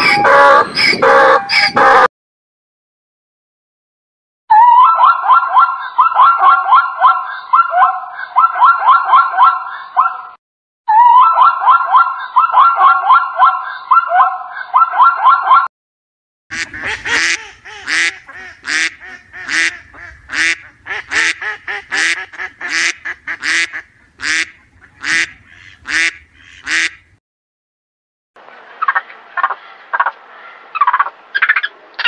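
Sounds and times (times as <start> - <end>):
ducks quacking: 0.0 - 2.1, 16.5 - 27.1, 28.5 - 32.0.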